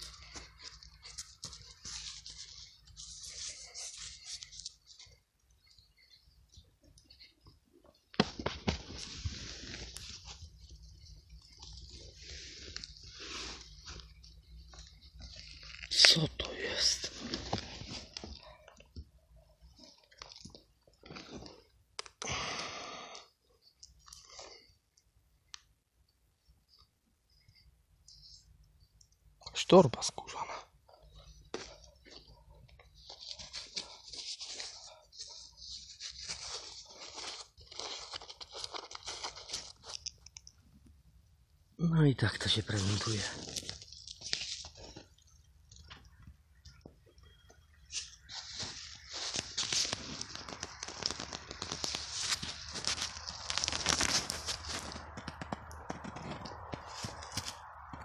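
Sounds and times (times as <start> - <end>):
roots and soil rustling and scraping: 0.0 - 22.2, 29.6 - 40.6, 41.8 - 58.0
hand scraping sand and soil: 8.9 - 10.8, 11.8 - 14.3, 47.8 - 58.0.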